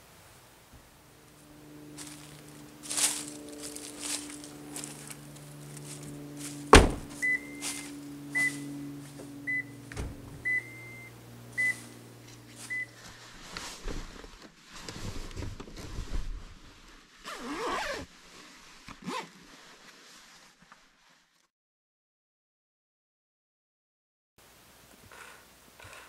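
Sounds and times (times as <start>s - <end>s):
steady low hum: 0.0s - 14.2s
rustling and handling noises: 1.9s - 9.3s, 11.6s - 21.4s
sharp thump: 6.7s - 7.2s.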